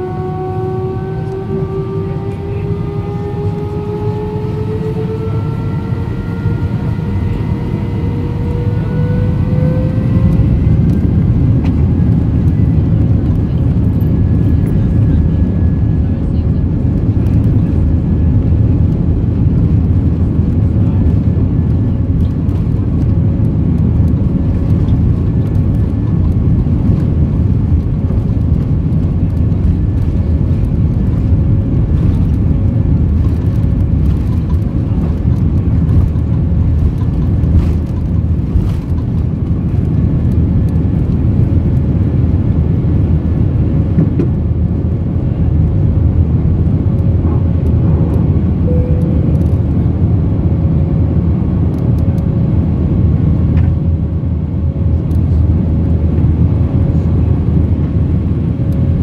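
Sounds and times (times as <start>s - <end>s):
jet engines rumbling and whining: 0.0s - 59.0s.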